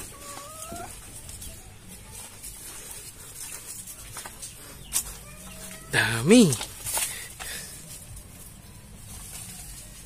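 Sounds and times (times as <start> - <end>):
hen calling softly: 0.0 - 0.9.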